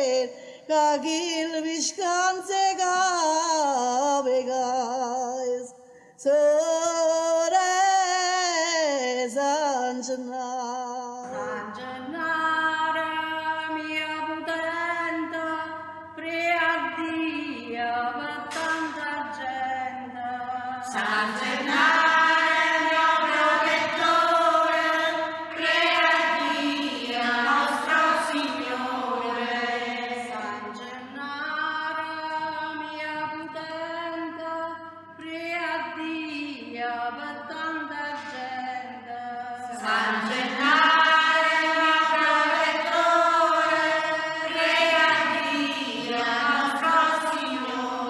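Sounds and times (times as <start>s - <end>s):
choir chanting unaccompanied: 11.2s - 33.1s, 36.8s - 48.0s.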